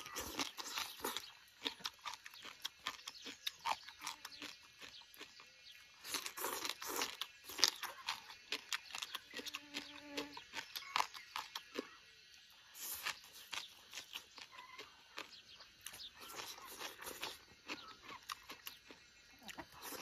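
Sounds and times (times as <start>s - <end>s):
chewing and crunching food: 0.0s - 20.0s.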